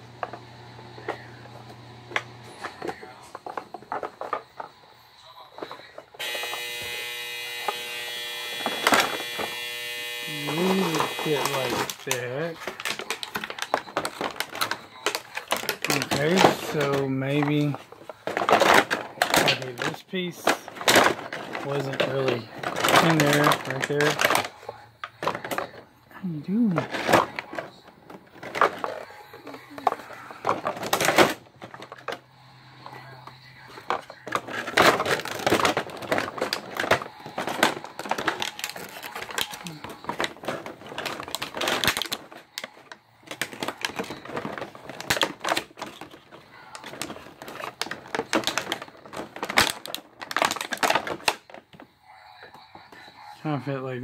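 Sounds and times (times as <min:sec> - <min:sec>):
plastic packaging crackling: 0:02.2 - 0:51.9
plastic toy clicks and clatter: 0:07.7 - 0:25.8, 0:26.6 - 0:32.2, 0:33.7 - 0:51.9.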